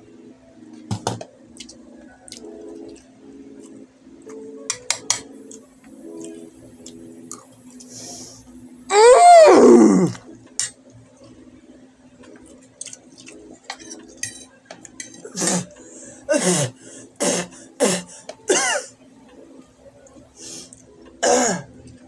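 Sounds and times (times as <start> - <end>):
man coughing vocal bursts: 16.3 - 18.9.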